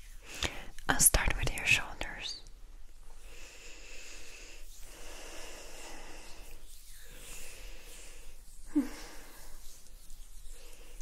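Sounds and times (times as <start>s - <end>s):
oily hands rubbing: 3.0s - 11.0s.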